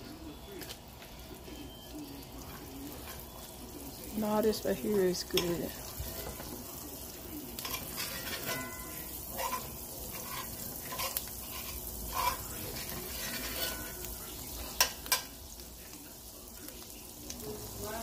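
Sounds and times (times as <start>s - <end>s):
butter sizzling in a skillet: 0.0s - 18.0s
utensil scraping a pan: 5.3s - 6.6s, 7.6s - 15.2s.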